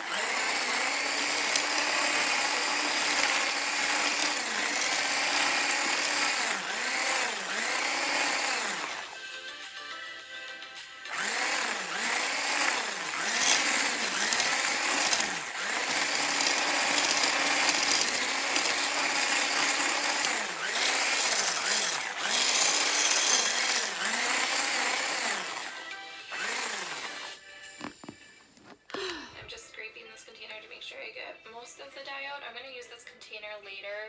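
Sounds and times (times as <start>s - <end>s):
electric hand blender whisking: 0.0s - 9.2s, 11.1s - 28.2s.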